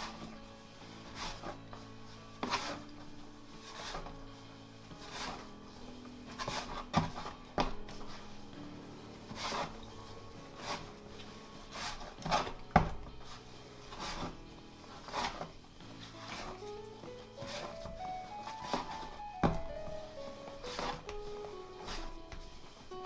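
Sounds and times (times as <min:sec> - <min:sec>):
dough rubbed on wooden board: 0:00.0 - 0:23.0
faint background music: 0:00.0 - 0:23.0
dough slapping against board: 0:10.6 - 0:13.1, 0:18.5 - 0:19.6.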